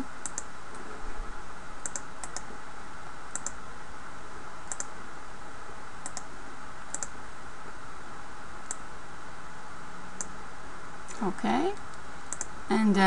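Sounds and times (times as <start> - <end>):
steady background hiss: 0.0 - 13.0
computer mouse clicking: 0.2 - 0.5, 1.8 - 2.5, 3.3 - 3.6, 4.7 - 4.9, 6.0 - 6.3, 6.9 - 7.2, 8.6 - 8.8, 11.8 - 12.5.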